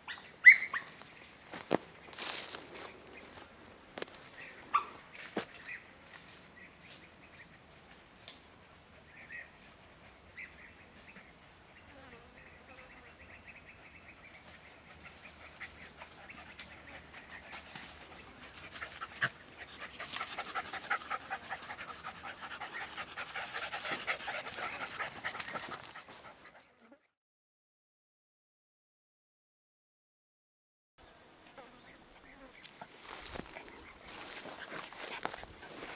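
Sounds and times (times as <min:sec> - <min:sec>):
hounds yelping: 0:00.0 - 0:01.0, 0:04.7 - 0:05.0, 0:15.0 - 0:26.4.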